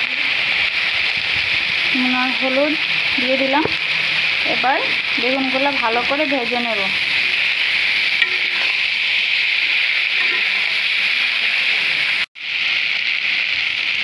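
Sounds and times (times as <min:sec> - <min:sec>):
vegetables sizzling in oil: 0:00.0 - 0:14.0
metal spatula stirring: 0:03.0 - 0:11.7.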